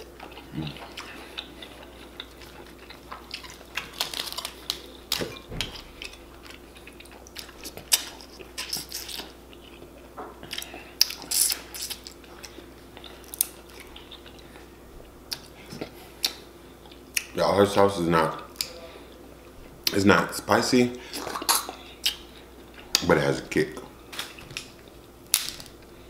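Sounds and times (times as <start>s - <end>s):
chewing: 0.0s - 14.7s
crab shell cracking: 3.1s - 5.3s, 24.1s - 25.8s.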